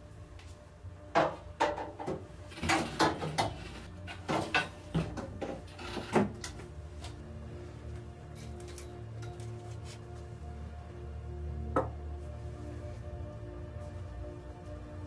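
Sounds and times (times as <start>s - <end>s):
boards knocking against metal frame: 1.2s - 6.4s.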